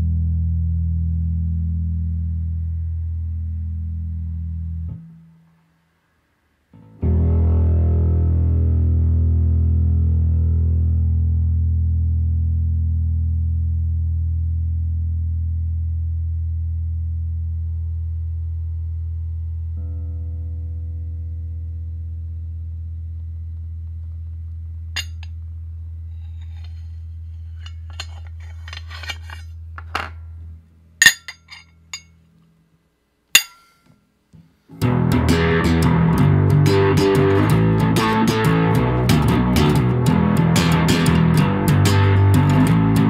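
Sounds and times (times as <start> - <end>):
guitar music: 6.8 - 12.8, 34.7 - 43.0
metallic clinks: 25.0 - 25.3, 31.0 - 32.2.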